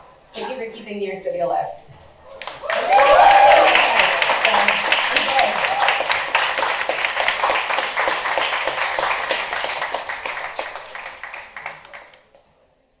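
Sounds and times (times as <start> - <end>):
audience applauding: 2.4 - 12.5.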